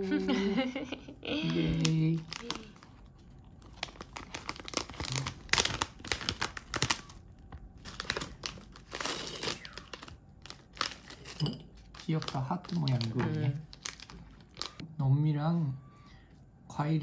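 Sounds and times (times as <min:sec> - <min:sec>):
plastic wrapper crinkling and tearing: 0:01.6 - 0:14.8.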